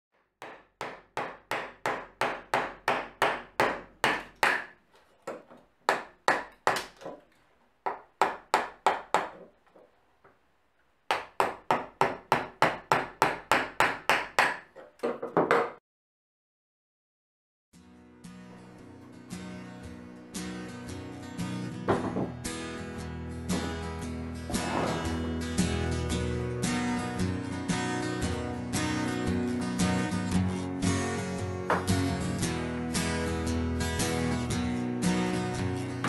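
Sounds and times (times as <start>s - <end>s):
wooden mallet striking chisel: 0.2s - 7.2s, 7.8s - 9.5s, 11.1s - 15.8s.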